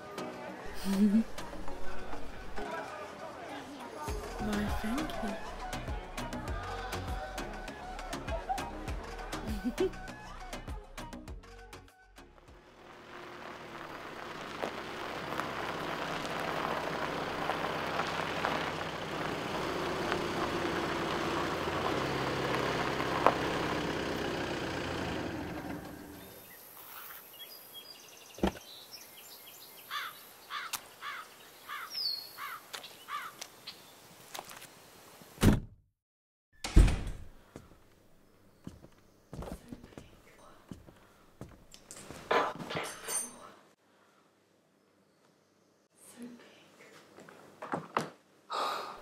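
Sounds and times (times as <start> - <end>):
car engine running: 12.6 - 26.4
tyres crunching on gravel: 12.8 - 26.4
birds chirping: 25.4 - 34.2, 37.4 - 41.4.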